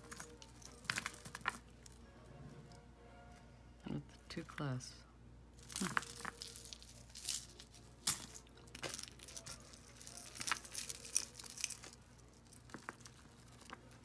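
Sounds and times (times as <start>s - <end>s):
beaded jewelry clicking and rattling: 0.0s - 2.0s, 5.5s - 14.0s.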